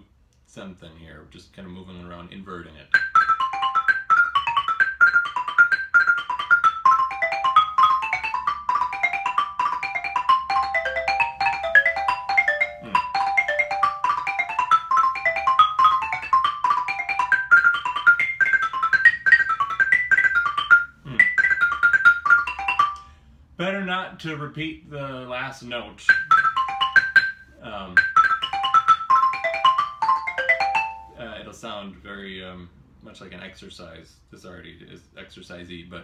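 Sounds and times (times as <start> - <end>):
xylophone fast notes: 2.9 - 23.1, 26.1 - 31.2.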